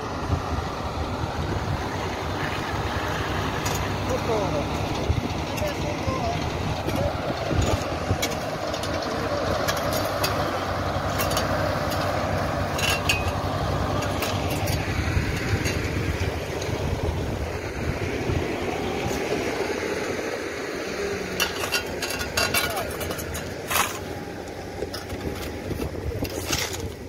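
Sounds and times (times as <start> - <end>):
tractor diesel engine idling: 0.0 - 27.0
shovels scraping on asphalt: 21.4 - 24.2, 25.0 - 27.0.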